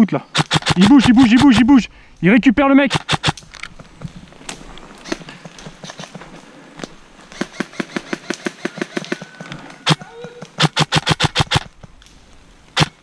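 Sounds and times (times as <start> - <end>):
footsteps crunching on dry leaves: 3.7 - 8.4.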